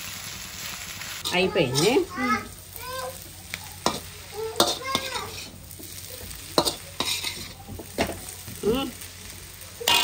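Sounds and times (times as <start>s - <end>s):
noodles sizzling in a wok: 0.0s - 10.0s
metal ladle scraping a pan: 3.8s - 7.6s.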